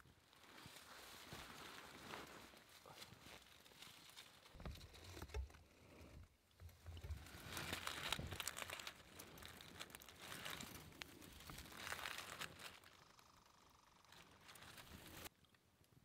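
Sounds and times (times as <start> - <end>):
dry leaves rustling: 0.2 - 4.6, 7.0 - 15.3.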